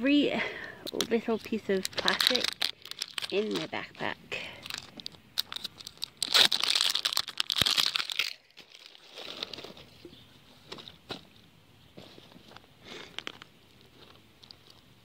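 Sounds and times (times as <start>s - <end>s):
plastic wrapper crinkling and tearing: 0.9s - 10.1s.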